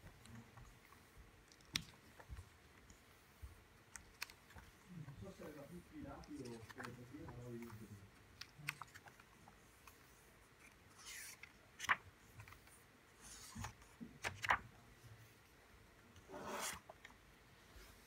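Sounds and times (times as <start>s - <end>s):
book pages turning: 0.0s - 14.7s, 16.2s - 17.2s.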